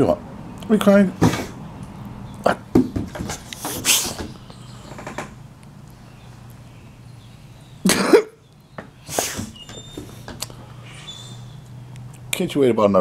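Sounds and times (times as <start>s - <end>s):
dog huffing: 3.4s - 4.6s, 9.0s - 11.6s.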